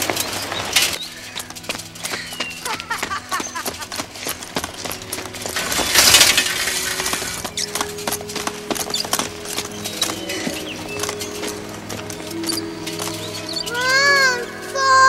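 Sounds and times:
metal leg braces clanking: 0.0s - 14.8s
music score: 1.0s - 15.0s
rattling crunching burst: 4.1s - 12.4s.

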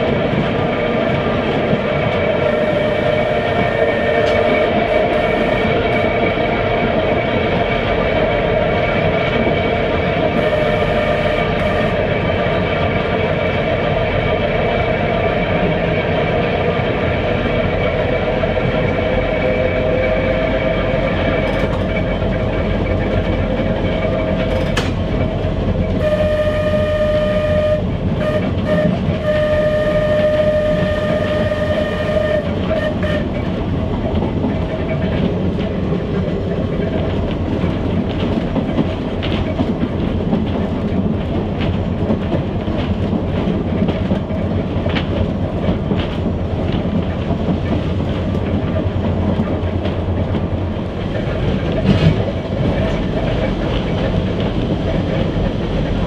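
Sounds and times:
tram motor whine: 0.0s - 56.0s
wheel-on-rail rumble: 0.0s - 56.0s.

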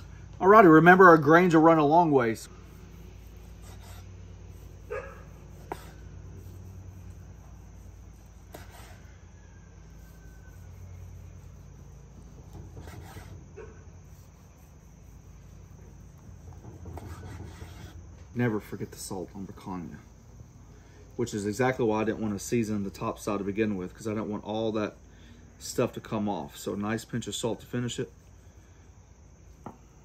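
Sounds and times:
low hum: 0.0s - 17.2s
faint insect drone: 0.0s - 30.0s.

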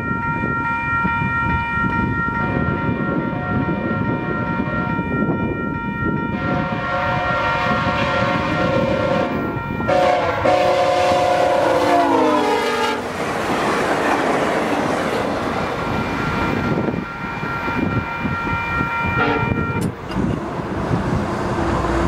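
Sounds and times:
locomotive air horn: 2.3s - 13.1s, 16.8s - 20.0s
train wheels clattering on rails: 19.8s - 22.0s.

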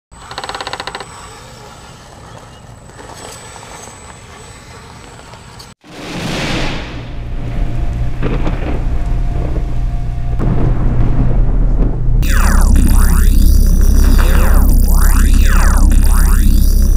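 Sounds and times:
outdoor noise: 0.1s - 16.9s
deep rumbling crash: 6.0s - 16.9s
thin high whine: 12.2s - 16.9s.

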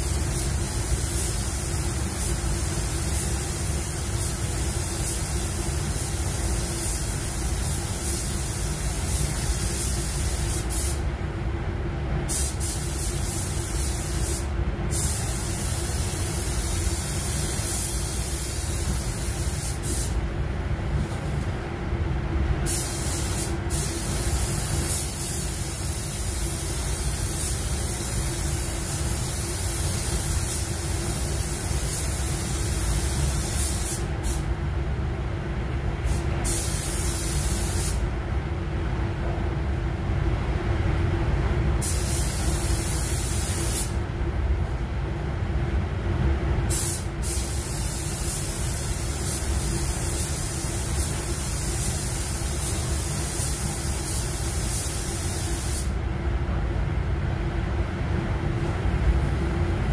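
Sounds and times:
spray gun hissing: 0.0s - 11.0s, 12.3s - 20.2s, 22.7s - 34.4s, 36.1s - 38.0s, 41.8s - 44.0s, 46.7s - 56.0s
spray booth air drone: 0.0s - 11.5s, 12.2s - 21.6s, 22.6s - 34.6s, 36.0s - 38.1s, 41.8s - 44.1s, 46.6s - 56.0s.

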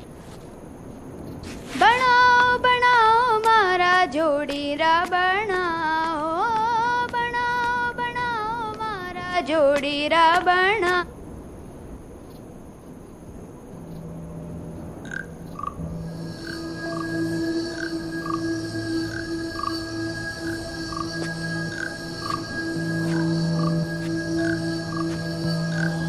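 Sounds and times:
low background hiss: 0.0s - 26.0s
girl singing unaccompanied: 1.7s - 11.2s, 15.8s - 26.0s.

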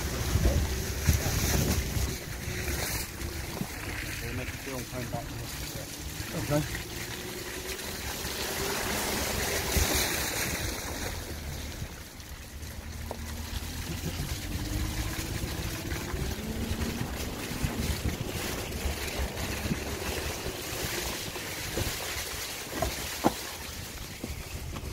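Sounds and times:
wind noise on microphone: 0.0s - 4.3s, 14.4s - 24.9s
car engine running low: 0.0s - 24.9s
tyre noise on wet ground: 0.0s - 24.9s
tyres splashing through puddle: 0.0s - 24.9s.

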